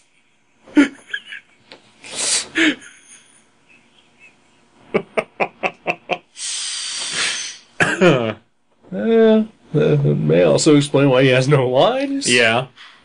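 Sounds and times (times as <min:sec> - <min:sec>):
man laughing quietly: 0:00.0 - 0:06.2.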